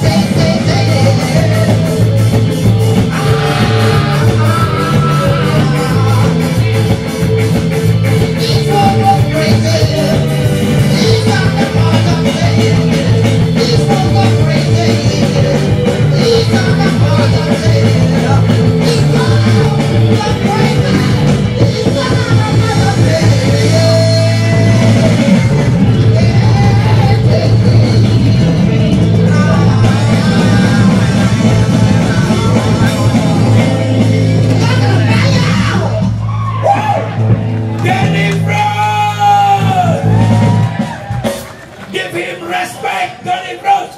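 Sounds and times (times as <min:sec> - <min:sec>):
man singing into microphone: 0:00.0 - 0:02.2, 0:03.1 - 0:06.8, 0:08.1 - 0:36.0
live reggae band playing: 0:00.0 - 0:43.9.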